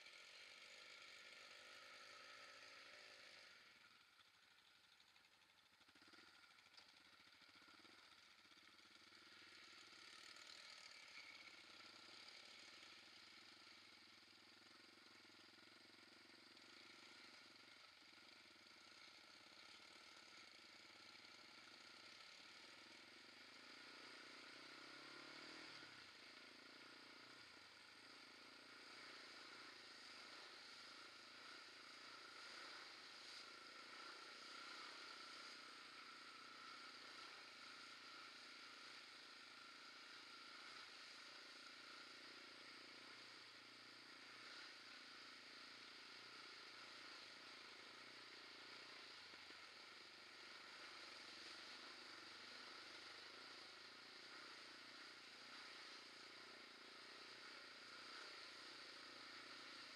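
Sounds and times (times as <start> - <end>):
quad bike engine running: 0.0 - 59.9.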